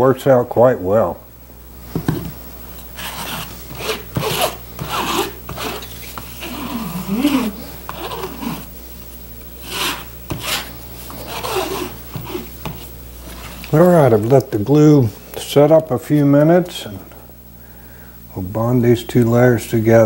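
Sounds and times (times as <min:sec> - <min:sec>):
glue spreader scraping tarp: 0:03.0 - 0:08.7, 0:09.6 - 0:13.8.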